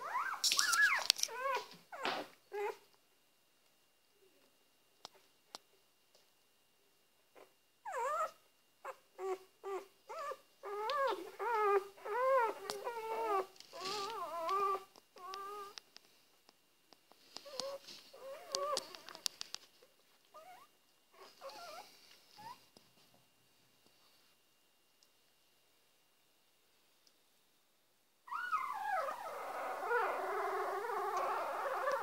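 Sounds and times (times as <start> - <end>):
puppies whimpering and squealing: 0.0 - 2.8, 7.4 - 15.8, 17.4 - 19.2, 28.3 - 32.0.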